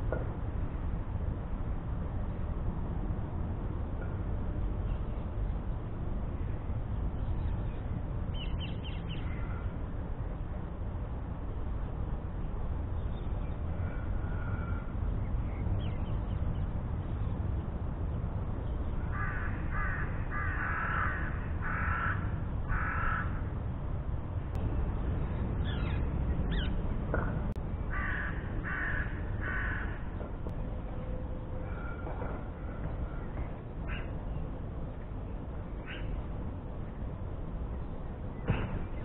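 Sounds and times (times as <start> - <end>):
steady low rumble: 0.0 - 39.0
crow cawing: 14.2 - 14.9, 19.1 - 23.4, 27.9 - 30.0.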